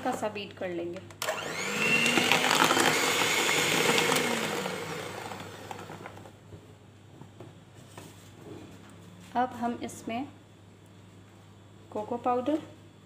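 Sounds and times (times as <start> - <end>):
electric hand mixer whining: 1.2 - 6.3.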